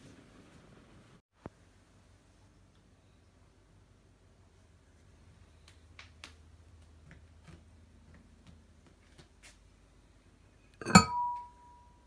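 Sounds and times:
ceramic lid knocking and ringing: 10.8 - 11.8.

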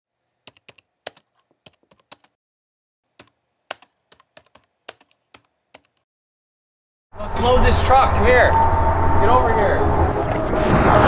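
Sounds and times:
keyboard keystroke clicks: 3.2 - 6.0.

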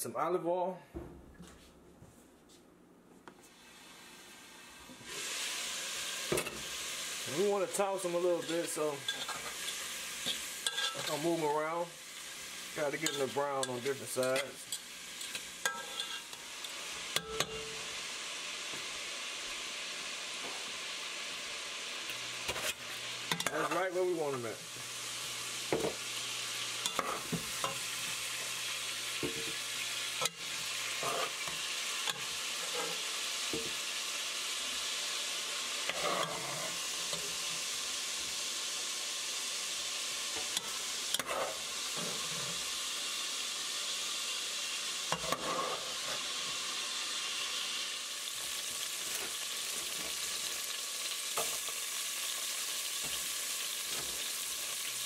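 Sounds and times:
sausage sizzling in oil: 3.4 - 55.0
utensil scraping a pot: 7.7 - 11.3, 13.0 - 16.4, 22.4 - 23.8, 29.2 - 33.7, 35.8 - 37.5, 40.4 - 42.7, 45.1 - 46.4.

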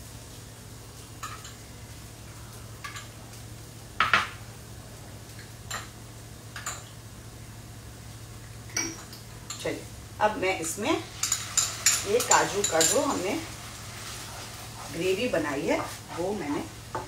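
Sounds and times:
utensils and dishes clinking: 11.2 - 13.3.

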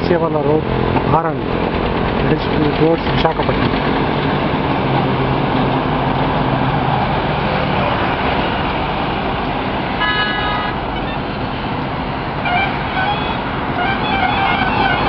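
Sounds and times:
heavy truck engine passing: 0.0 - 15.0
highway traffic noise: 0.0 - 15.0
vehicle horn honk: 10.0 - 11.2, 12.4 - 15.0.

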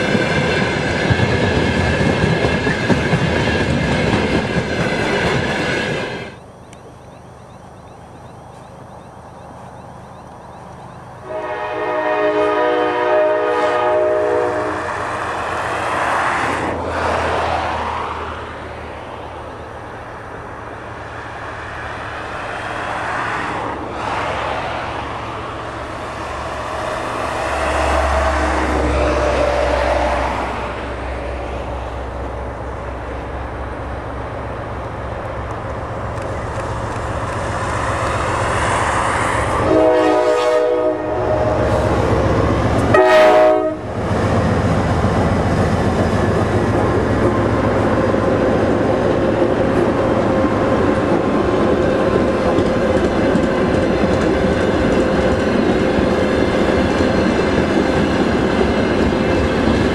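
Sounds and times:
diesel locomotive engine: 0.0 - 59.9
train wheels rolling on rails: 0.0 - 59.9
locomotive horn blasts: 11.2 - 14.9, 39.6 - 42.0, 42.8 - 44.0.

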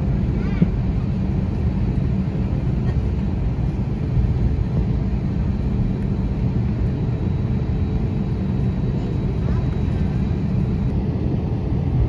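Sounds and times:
aircraft cabin engine rumble: 0.0 - 12.0.

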